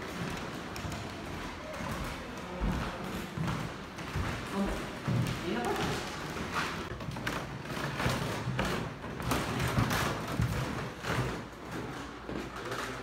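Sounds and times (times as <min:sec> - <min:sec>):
footsteps on wooden floor: 0:00.0 - 0:13.0.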